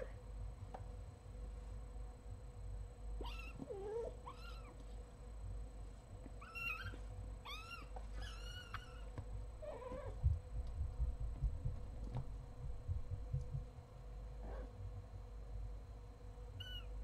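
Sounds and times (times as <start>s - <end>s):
kitten mewing: 3.2s - 4.7s
low bump: 10.2s - 13.8s.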